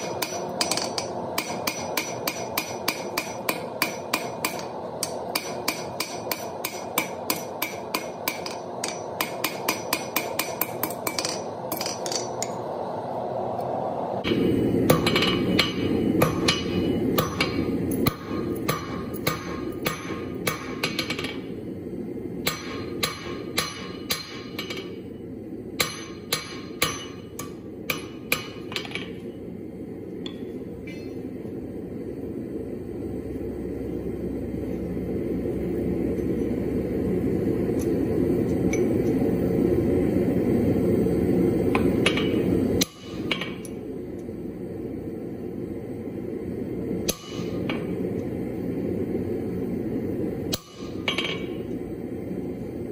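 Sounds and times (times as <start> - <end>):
hammer striking steel on anvil: 0.0 - 12.6, 14.2 - 21.5, 22.4 - 25.0, 25.8 - 29.2, 30.2 - 31.2, 41.7 - 43.8, 47.0 - 48.0, 50.5 - 51.6.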